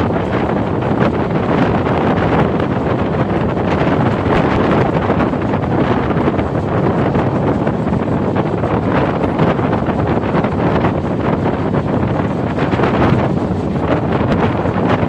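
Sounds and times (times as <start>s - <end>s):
train running noise: 0.0s - 15.0s
wind buffeting microphone: 0.0s - 15.0s.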